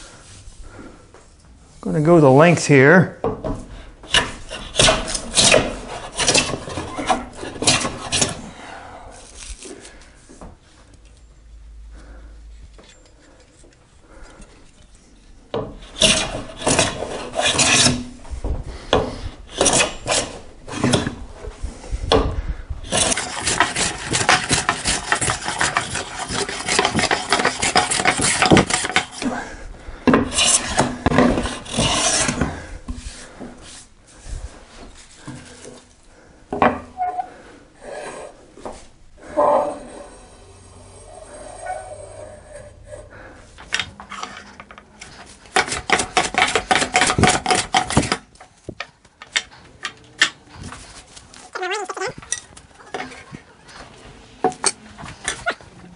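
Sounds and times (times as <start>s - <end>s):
hand plane shaving wood: 4.1s - 8.4s, 15.8s - 18.2s, 19.5s - 21.1s, 22.8s - 29.4s, 30.2s - 33.8s, 45.1s - 48.3s.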